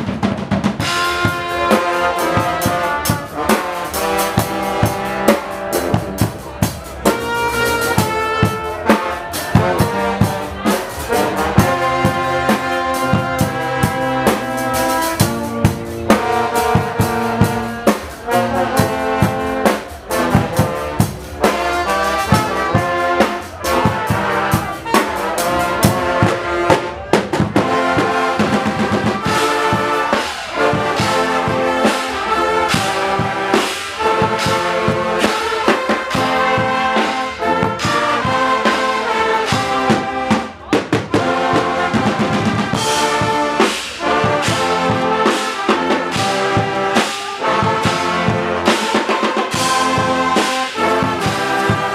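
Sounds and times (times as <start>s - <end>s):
brass band playing: 0.0s - 51.9s.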